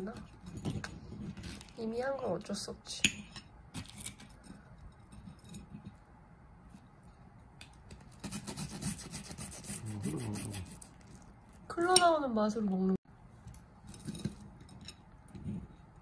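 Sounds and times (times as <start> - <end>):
knife sawing through toast: 8.2 - 11.2.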